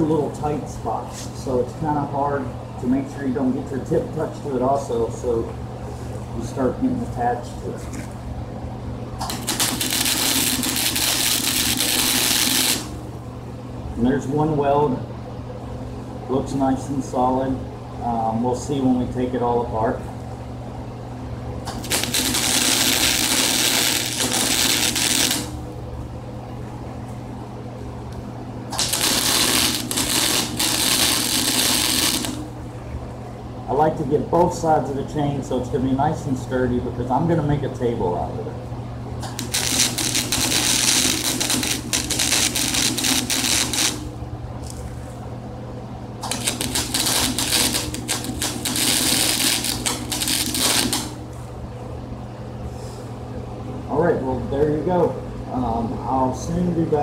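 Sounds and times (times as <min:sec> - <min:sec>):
steady low hum: 0:00.0 - 0:57.0
welding arc crackling: 0:09.2 - 0:13.1, 0:21.7 - 0:25.7, 0:28.7 - 0:32.5, 0:39.2 - 0:44.2, 0:46.2 - 0:51.2.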